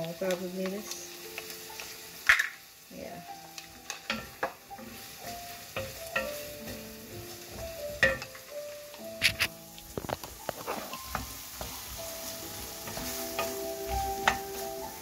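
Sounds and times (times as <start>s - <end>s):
wooden spoon stirring sauce: 3.4s - 15.0s.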